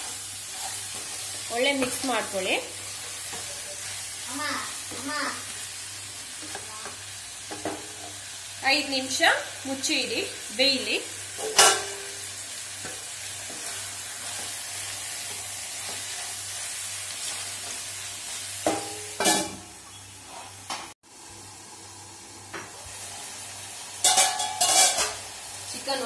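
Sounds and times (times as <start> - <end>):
chicken sizzling in oil: 0.0 - 26.0
metal lid clanking on pan: 11.4 - 12.1, 24.0 - 25.2.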